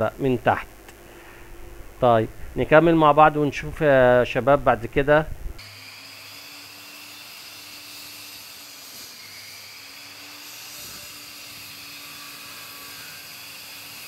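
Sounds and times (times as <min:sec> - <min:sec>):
faint background hum and hiss: 0:00.0 - 0:05.6.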